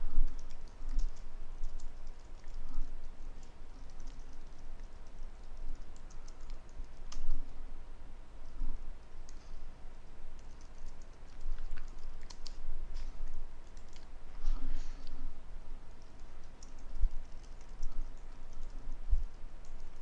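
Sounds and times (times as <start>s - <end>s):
computer keyboard typing: 0.2s - 7.5s, 10.4s - 12.6s, 13.6s - 14.1s, 16.0s - 19.0s.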